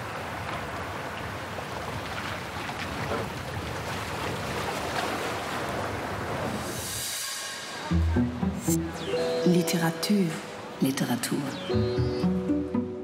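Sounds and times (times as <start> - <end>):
sea waves on rocky shore: 0.0 - 7.9
wind: 0.0 - 13.0.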